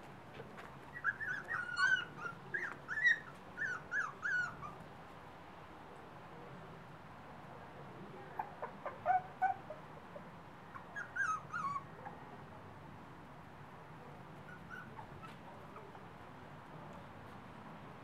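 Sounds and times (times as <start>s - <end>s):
puppies whimpering: 0.9s - 4.8s, 8.4s - 9.8s, 10.7s - 12.2s, 14.5s - 16.0s.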